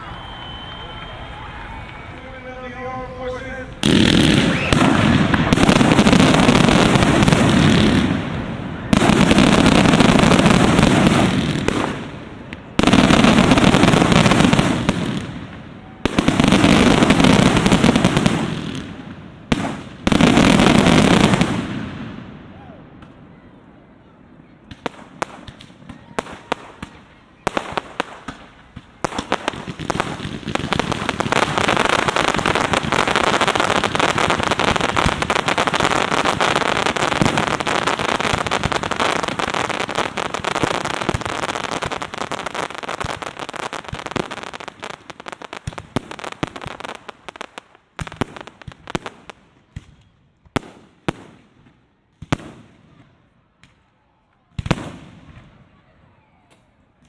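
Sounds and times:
fireworks bangs and crackling: 0.0s - 57.0s.

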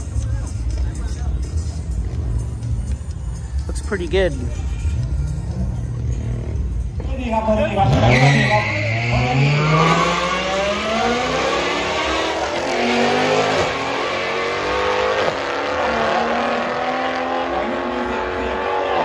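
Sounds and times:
drag racing cars accelerating: 4.9s - 19.0s.

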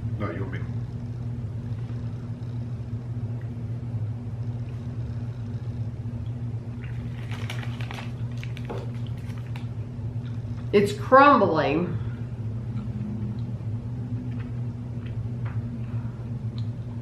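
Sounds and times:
room hum: 0.0s - 17.0s
wrappers crackling and rustling: 6.8s - 9.8s.

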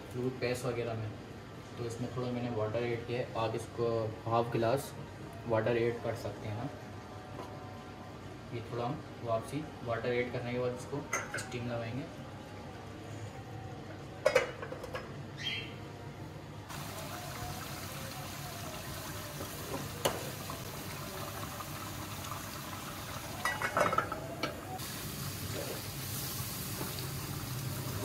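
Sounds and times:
gravy simmering and sizzling: 16.7s - 28.0s.

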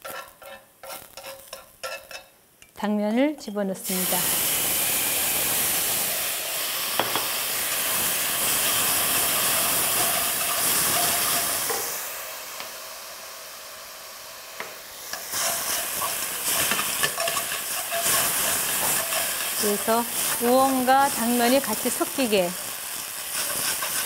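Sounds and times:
spatula scraping a pan: 0.0s - 2.3s, 9.3s - 11.8s, 15.1s - 22.0s, 22.9s - 24.0s
food sizzling in a frying pan: 0.0s - 2.4s, 3.8s - 24.0s.

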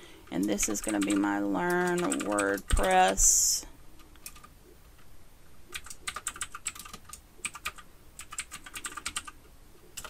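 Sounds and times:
typing on computer keyboard: 0.3s - 3.2s, 4.0s - 4.5s, 5.7s - 9.4s.

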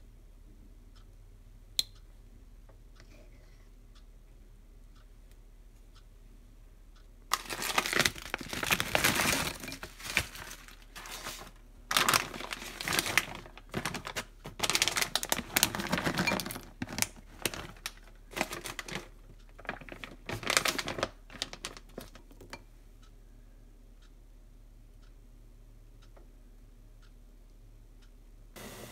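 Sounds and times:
plastic bags crinkling: 7.3s - 22.5s.

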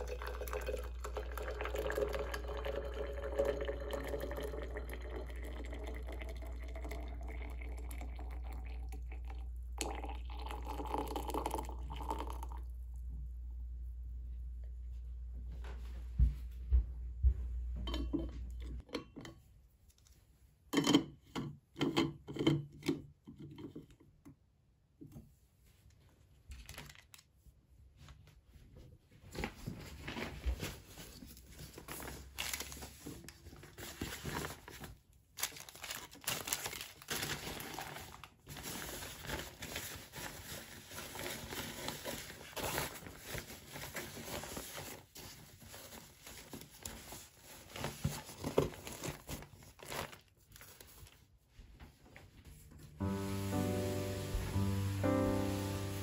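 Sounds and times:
plastic rustling and crinkling: 25.7s - 56.0s.

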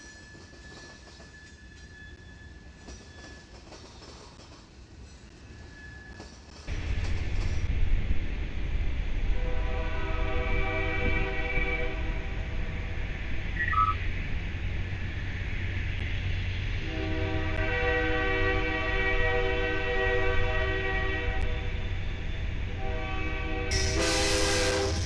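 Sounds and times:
diesel locomotives rumbling: 0.0s - 25.0s
locomotive horn blast: 9.3s - 12.4s, 16.8s - 21.8s, 22.7s - 25.0s.

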